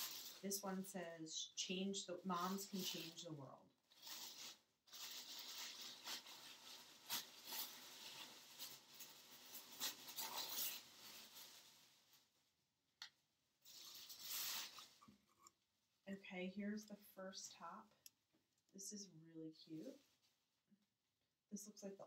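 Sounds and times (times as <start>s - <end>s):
tissue paper rustling and crinkling: 0.0s - 0.5s, 2.3s - 3.2s, 3.9s - 12.5s, 13.6s - 15.1s.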